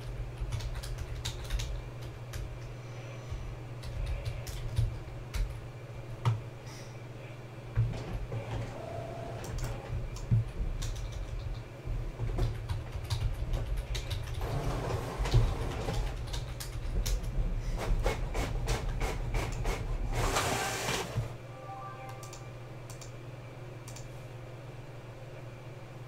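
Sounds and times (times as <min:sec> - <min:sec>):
low room hum: 0:00.0 - 0:26.0
computer keyboard typing: 0:00.1 - 0:02.6, 0:03.8 - 0:05.6, 0:09.4 - 0:11.7, 0:12.3 - 0:14.4, 0:15.9 - 0:17.3, 0:22.1 - 0:23.1.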